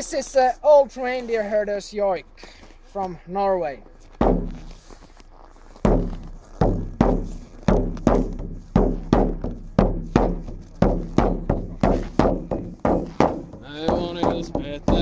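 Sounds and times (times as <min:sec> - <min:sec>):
frame drum beaten: 0:04.2 - 0:04.9, 0:05.8 - 0:15.0.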